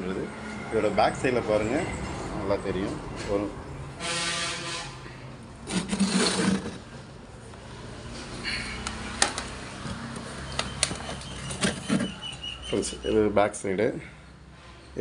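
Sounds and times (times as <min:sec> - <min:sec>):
rubbing: 0:05.6 - 0:06.9
wooden cabinet scraping on surface: 0:05.6 - 0:06.9, 0:11.0 - 0:12.4.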